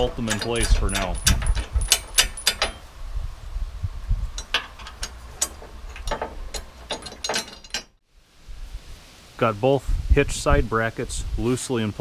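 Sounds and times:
metal bracket and bolts clinking: 0.0s - 2.9s, 4.3s - 8.0s.

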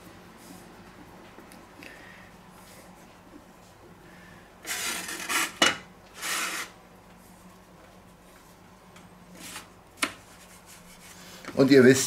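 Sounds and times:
metal scraping across wooden board: 4.7s - 6.7s.

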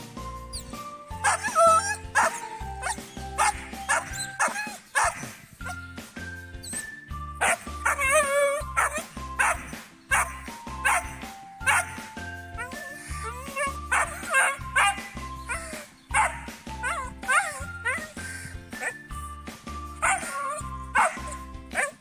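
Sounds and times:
background music with beat: 0.0s - 1.3s
dog wavering cry: 0.5s - 5.8s, 6.6s - 19.2s, 20.0s - 22.0s
young dog barking: 0.6s - 5.8s, 6.7s - 19.0s, 20.0s - 22.0s.

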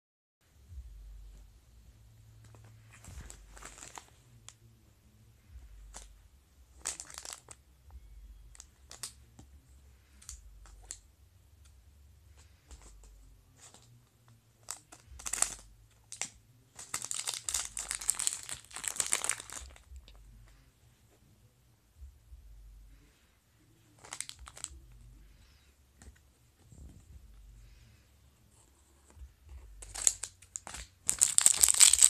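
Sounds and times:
plastic packet crinkling: 3.2s - 4.1s, 6.8s - 7.6s, 14.6s - 19.9s, 24.0s - 24.7s, 29.8s - 32.0s.

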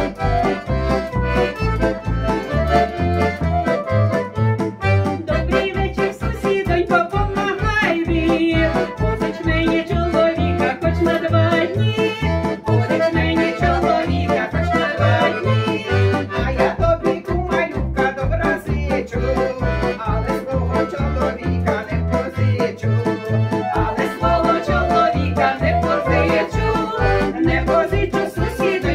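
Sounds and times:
piano accordion: 0.0s - 28.9s
steady bass beat: 0.0s - 28.9s
women singing folk song: 5.3s - 18.6s, 23.7s - 28.9s.

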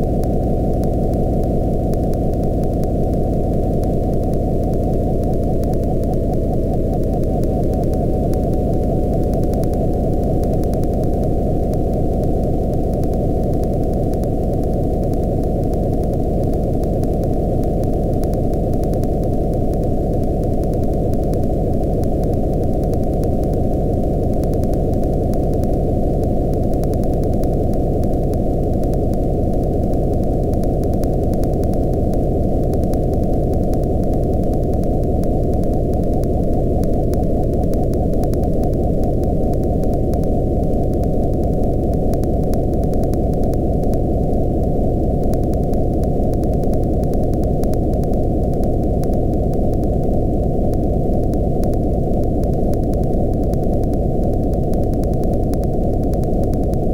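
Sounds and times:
faint rapid ticking: 0.0s - 56.9s.

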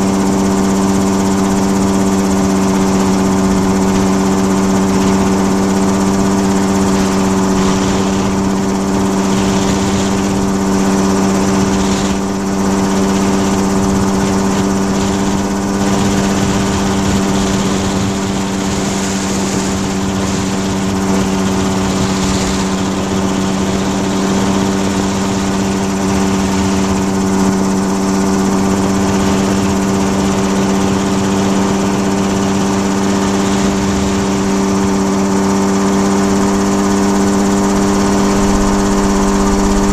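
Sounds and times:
small propeller engine running: 0.0s - 39.9s
hiss of airflow: 4.7s - 26.4s.

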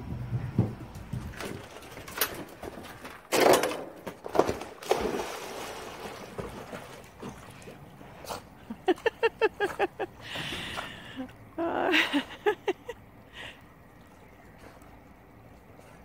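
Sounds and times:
dog splashing into pool: 1.3s - 9.3s
water sloshing: 1.6s - 16.0s.

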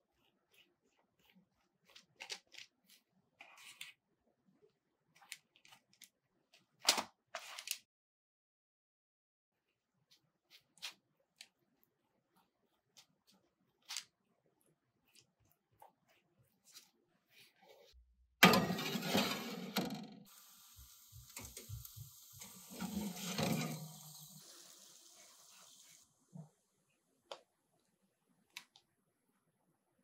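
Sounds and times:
baking sheet scraping and clattering: 18.4s - 20.2s, 21.3s - 24.4s
faint steady hiss: 20.3s - 28.8s.

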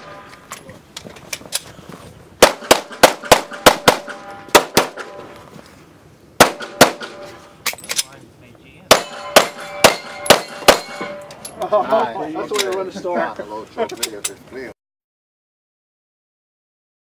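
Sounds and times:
handgun shots: 2.4s - 5.2s, 6.4s - 8.0s, 8.9s - 11.2s.

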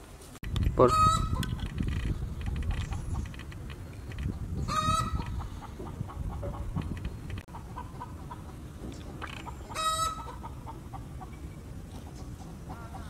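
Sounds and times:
chickens clucking softly: 4.2s - 13.0s
chicken squawk: 4.7s - 6.4s, 9.7s - 10.8s.

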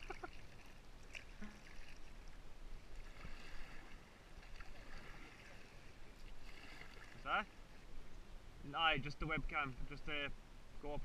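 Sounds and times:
water splashing against kayak hull: 0.0s - 7.9s.

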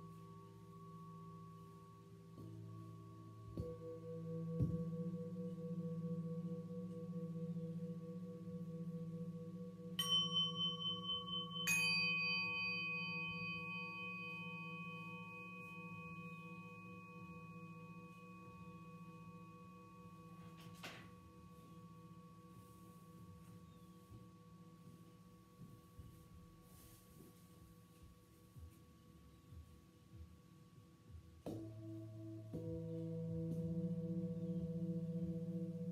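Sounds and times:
deep singing bowl tone: 0.0s - 27.0s, 31.5s - 35.9s
higher-pitched singing bowl strikes: 2.3s - 22.6s.

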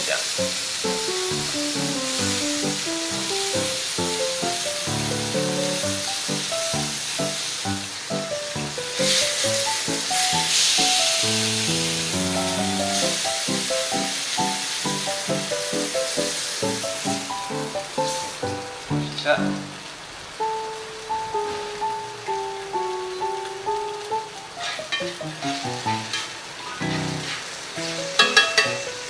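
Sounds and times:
pork chop sizzling on a griddle: 0.0s - 29.0s
background music with quick melody: 0.4s - 19.4s.

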